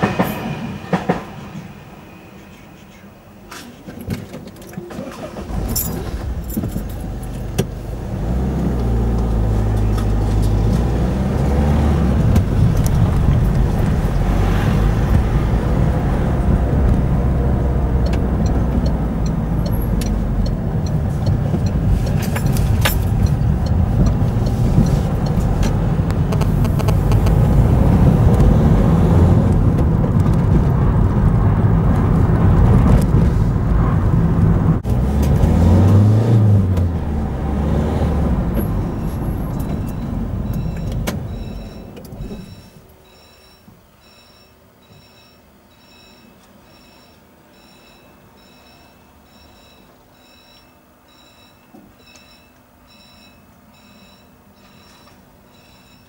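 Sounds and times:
road noise: 0:00.0 - 0:44.0
car engine: 0:04.6 - 0:42.6.

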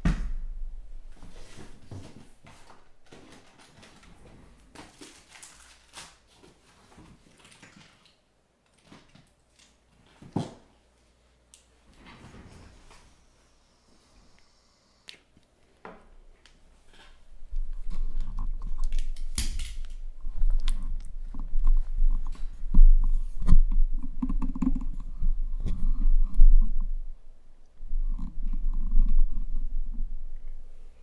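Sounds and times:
packaging crinkling and rustling: 0:01.6 - 0:10.4, 0:17.0 - 0:23.6.

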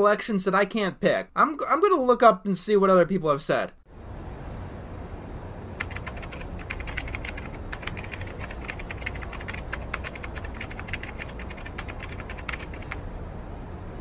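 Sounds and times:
keyboard typing: 0:05.8 - 0:13.0.

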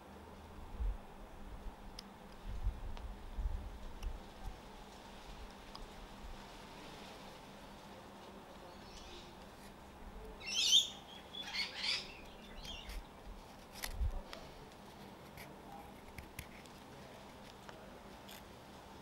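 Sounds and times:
bird warbling: 0:10.4 - 0:12.9.

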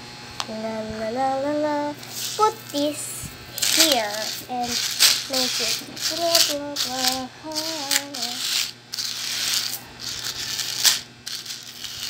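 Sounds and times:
child singing: 0:00.4 - 0:08.6
metal ball chain rattling on floor: 0:03.6 - 0:12.0.

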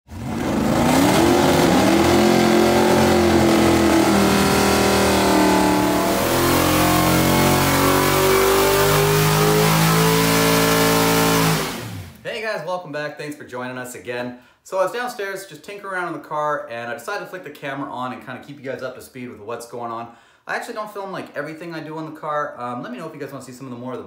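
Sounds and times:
race engine revving high: 0:00.1 - 0:12.2.

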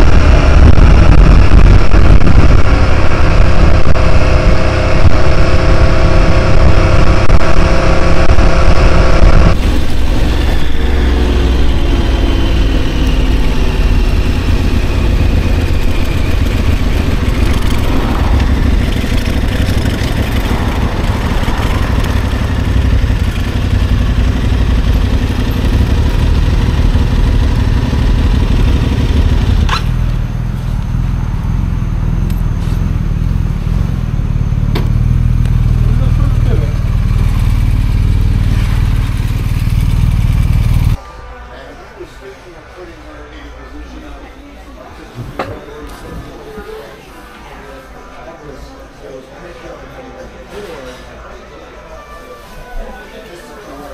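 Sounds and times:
motorcycle engine: 0:00.0 - 0:41.0.

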